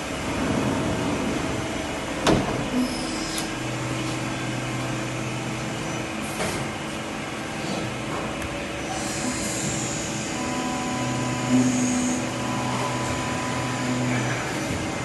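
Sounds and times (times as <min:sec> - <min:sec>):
lathe humming: 0:08.8 - 0:15.0.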